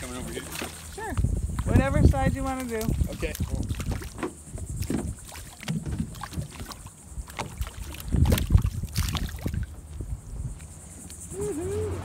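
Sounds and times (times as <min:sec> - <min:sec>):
fish splashing in water: 0:00.0 - 0:09.8.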